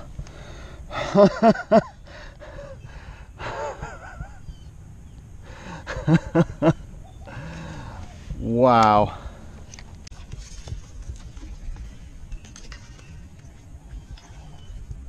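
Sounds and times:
soft voiced breath: 7.2 - 8.4
man gasping: 7.3 - 8.2.

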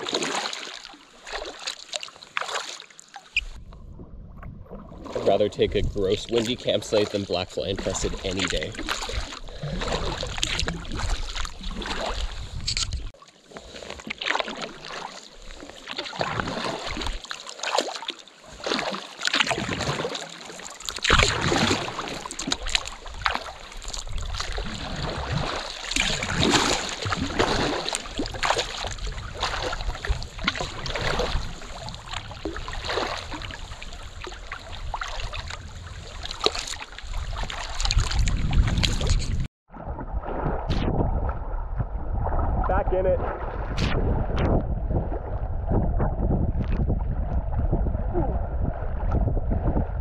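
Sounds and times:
kayak paddle splashing: 0.0 - 3.6, 4.6 - 49.3
wind on microphone: 3.4 - 6.8, 7.4 - 13.1, 23.0 - 50.0.

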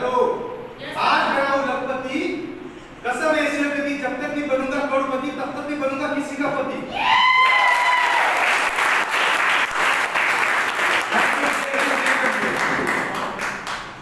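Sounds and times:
audience applauding: 7.4 - 14.0.

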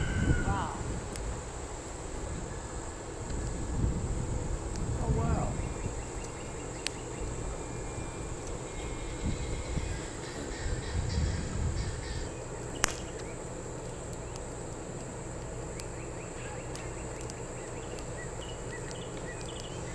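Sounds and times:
insects droning: 0.0 - 19.9
sharp click: 12.8 - 13.3.

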